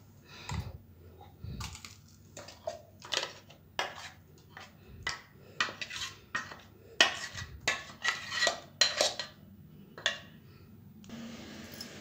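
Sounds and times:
spatula knocking and scraping metal: 2.4 - 9.4.

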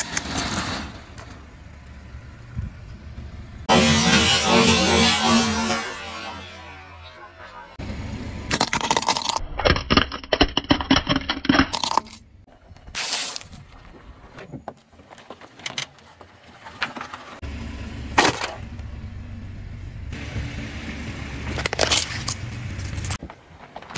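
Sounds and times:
loud crunch: 8.4 - 14.3, 21.5 - 23.9
plastic toys cracking under tyre: 8.5 - 12.2.

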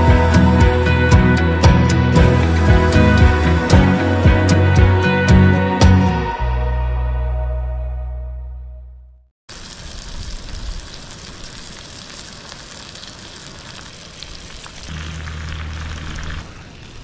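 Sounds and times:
low steady hum: 14.9 - 16.6.

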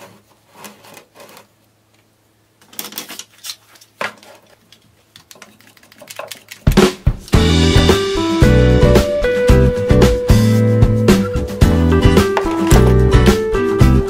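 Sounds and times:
wooden parts clicking and knocking: 2.6 - 6.8
music: 6.7 - 14.0.

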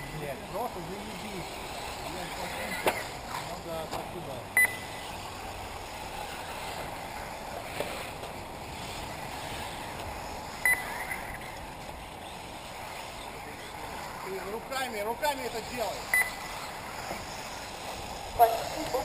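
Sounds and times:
rc buggies whirring: 0.0 - 19.0
short high beeps: 4.6 - 5.0, 10.6 - 11.4, 16.1 - 16.4.

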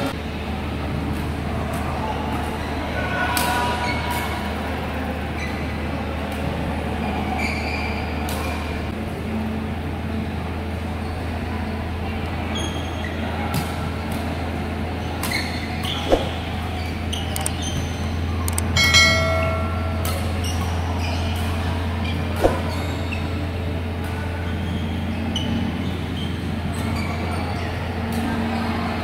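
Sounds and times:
low hall hum: 0.0 - 29.0
racket hitting shuttlecock: 15.2 - 17.7, 18.5 - 23.1
chiming sound effect: 18.5 - 20.6.

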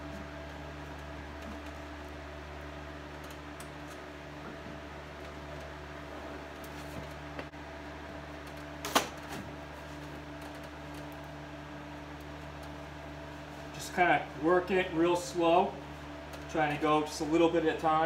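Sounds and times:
steady low hum: 0.0 - 18.0
vinyl sheet rustling by hand: 6.3 - 7.6.

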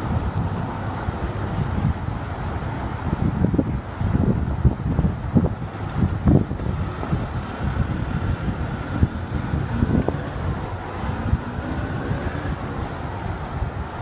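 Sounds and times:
street traffic rumble: 0.0 - 14.0
wind buffeting microphone: 0.0 - 14.0.

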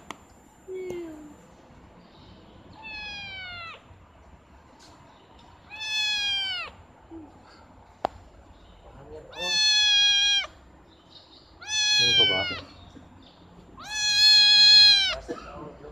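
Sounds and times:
kitten meowing: 2.8 - 3.8, 5.7 - 6.8, 9.3 - 10.6, 11.6 - 12.8, 13.8 - 15.2.

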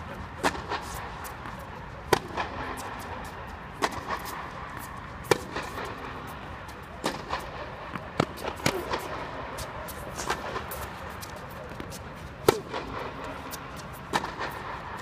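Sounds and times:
tennis balls struck with rackets: 0.4 - 15.0
ball bounces: 14.1 - 14.6.

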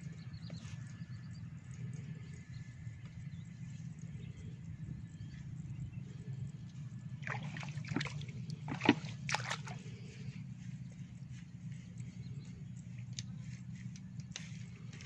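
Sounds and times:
low hum: 0.0 - 15.0
mud and water squelching: 6.7 - 15.0
sharp wet slaps: 7.2 - 9.9.

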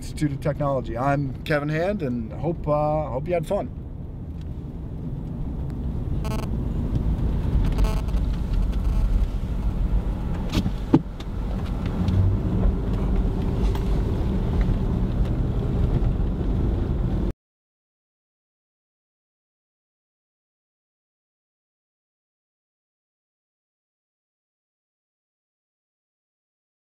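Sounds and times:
car engine and road rumble: 0.0 - 17.3.

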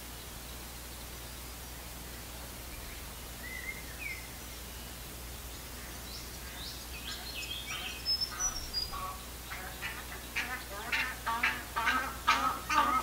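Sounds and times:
steady hiss: 0.0 - 13.0
water birds calling: 2.7 - 13.0.

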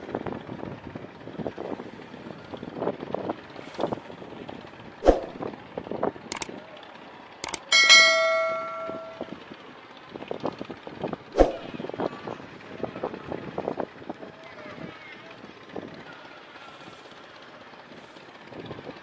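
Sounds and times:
sharp mouse clicks: 5.0 - 5.4, 7.4 - 7.6, 11.4 - 11.7
notification bell ding: 7.4 - 9.3, 11.5 - 11.7.

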